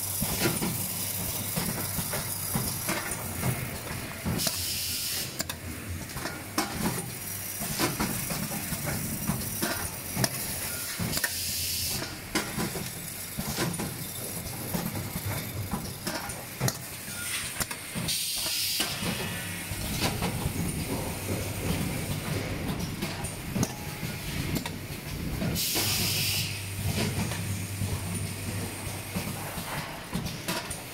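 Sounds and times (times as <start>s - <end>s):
compressed-air hiss: 4.4s - 5.4s, 18.1s - 19.8s, 25.6s - 26.6s.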